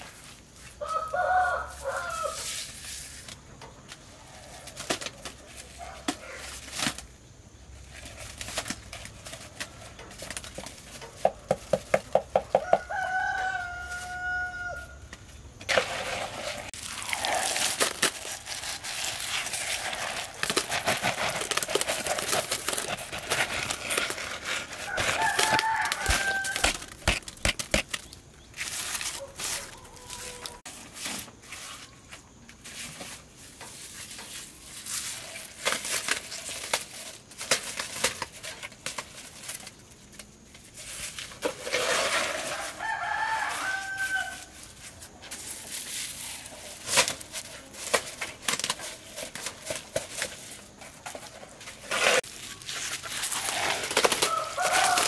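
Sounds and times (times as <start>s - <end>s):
rooster crowing: 0.8s - 2.5s, 12.5s - 15.0s, 24.8s - 26.9s, 29.2s - 30.7s, 42.2s - 44.6s, 54.2s - 55.0s
knocks and scrapes: 15.0s - 39.6s, 40.5s - 55.0s
plastic crinkling: 16.7s - 30.7s, 33.7s - 55.0s.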